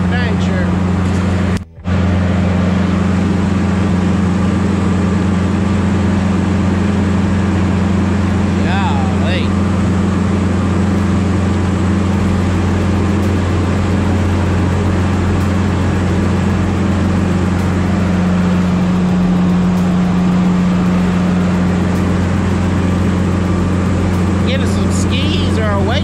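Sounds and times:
diesel engine under load: 0.0 - 26.0.

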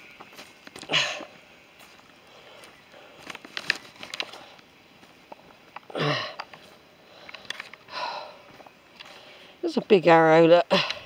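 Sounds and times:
footsteps crunching on dry path: 0.0 - 10.1
person breathing heavily: 0.8 - 1.5, 2.1 - 3.4, 5.9 - 9.6.

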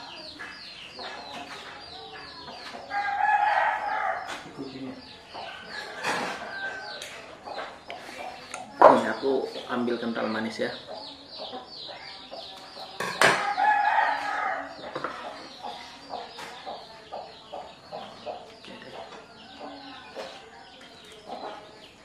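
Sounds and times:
chickens clucking: 0.0 - 22.0
rooster crowing: 13.4 - 14.7.

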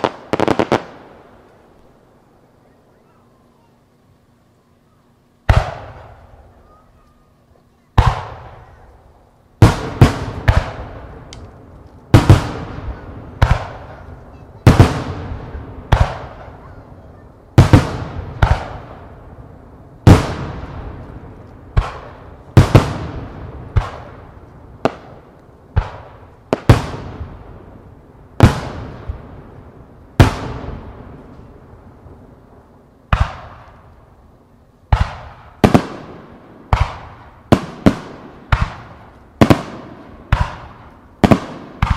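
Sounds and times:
firework shells bursting with echo: 7.9 - 19.3.

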